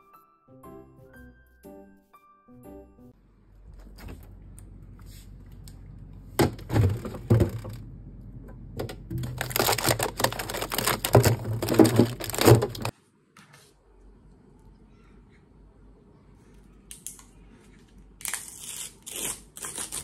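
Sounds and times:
frozen packs clattering: 6.4s - 7.8s, 8.8s - 12.9s
crinkling plastic wrappers: 9.2s - 12.9s.

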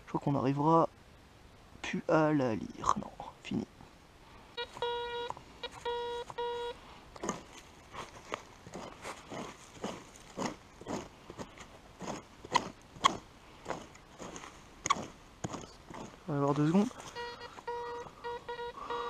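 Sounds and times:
metal detector beeps: 4.6s - 6.8s, 17.0s - 19.0s
hand tool digging into soil: 7.2s - 17.2s.

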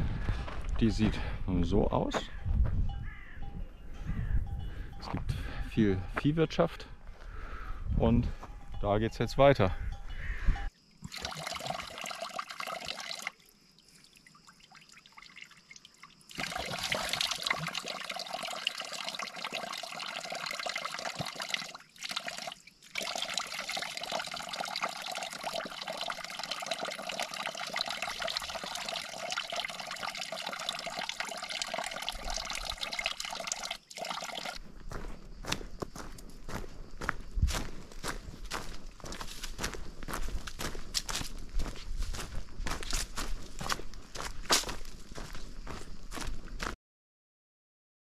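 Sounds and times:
running water: 11.0s - 34.6s.

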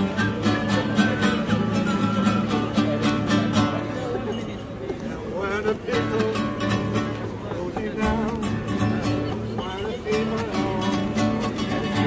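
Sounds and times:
acoustic guitar strumming: 0.0s - 4.4s, 5.4s - 12.0s
man singing: 5.3s - 12.0s.

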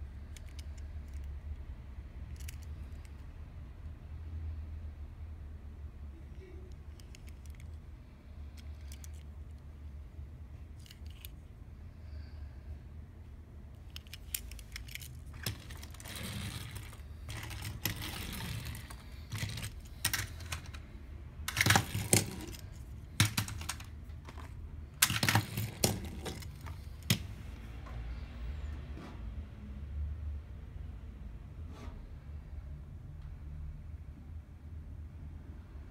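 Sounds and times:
toy bus clicking and rattling: 0.2s - 1.6s, 2.3s - 3.2s, 6.9s - 7.8s, 8.5s - 9.3s, 10.8s - 11.3s, 13.8s - 20.8s, 21.5s - 27.3s
toy clattering: 0.3s - 1.3s, 2.3s - 3.2s, 6.7s - 7.8s, 8.5s - 9.4s, 10.8s - 11.4s, 13.8s - 27.4s.

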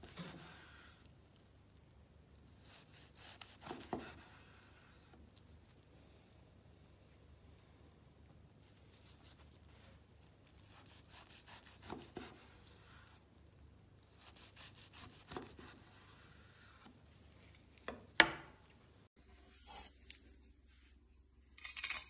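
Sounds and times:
knife sawing through steak: 2.7s - 5.1s, 10.7s - 13.2s, 14.2s - 16.8s.

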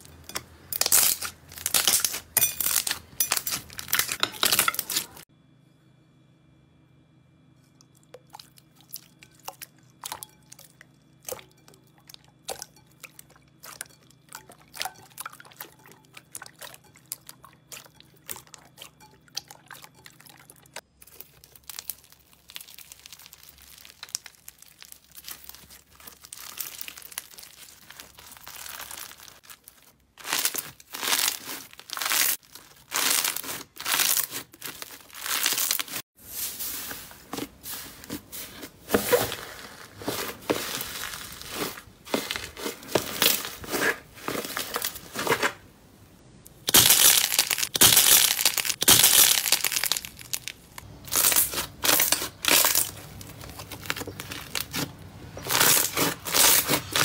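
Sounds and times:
slime crunchy crackle: 0.7s - 5.2s, 21.0s - 36.0s, 46.6s - 57.0s
slime crackling bursts: 21.0s - 36.0s, 46.6s - 57.0s.

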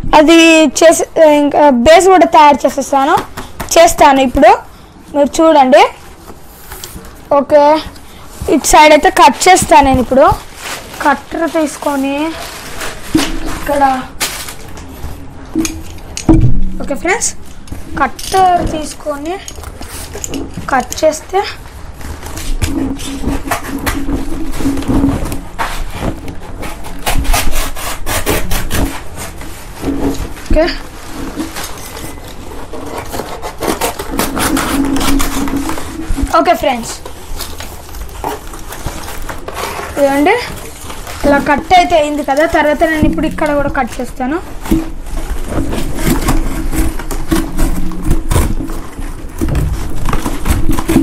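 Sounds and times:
scissors cutting cardboard: 22.2s - 29.4s, 31.5s - 43.6s, 45.6s - 51.0s.

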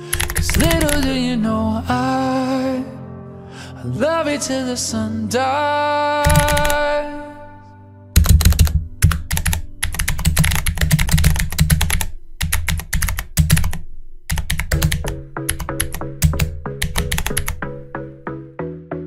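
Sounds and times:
keyboard typing: 0.0s - 1.2s, 6.2s - 7.0s, 8.2s - 18.2s.

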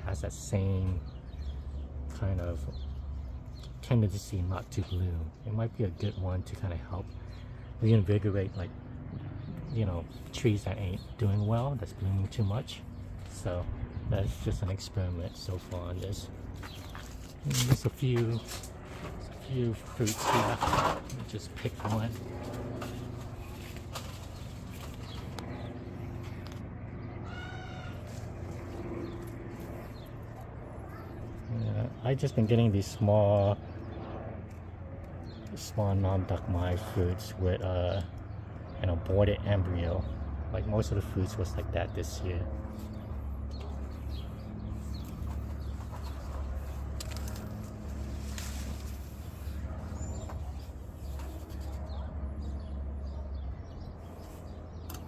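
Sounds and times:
birds calling: 0.0s - 55.0s
steady low hum: 0.0s - 55.0s
leaves and twigs rustling: 16.0s - 25.6s, 27.3s - 31.4s, 44.0s - 51.9s.

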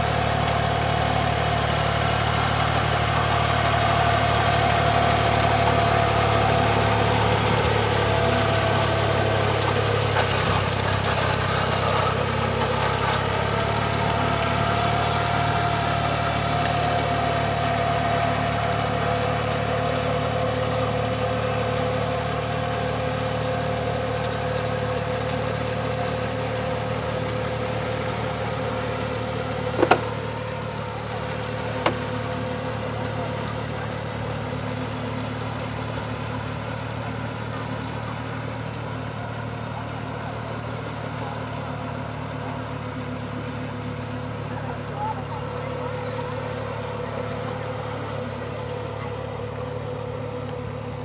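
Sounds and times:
small tractor engine running: 0.0s - 51.0s
sharp knocks: 29.8s - 30.2s.

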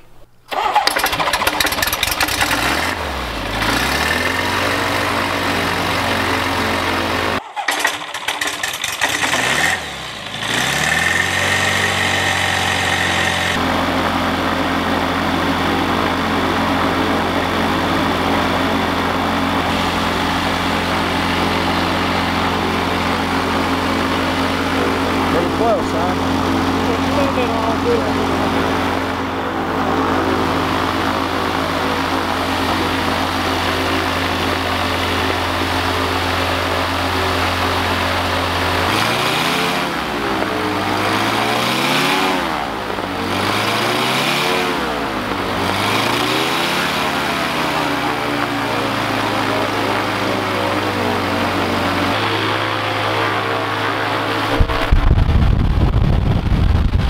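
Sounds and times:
aircraft engine revving: 0.5s - 57.0s
loud low rumble: 54.5s - 57.0s.

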